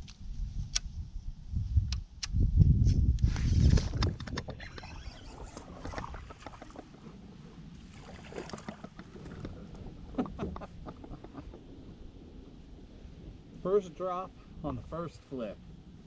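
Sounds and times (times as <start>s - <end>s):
fish splashing: 7.8s - 9.6s.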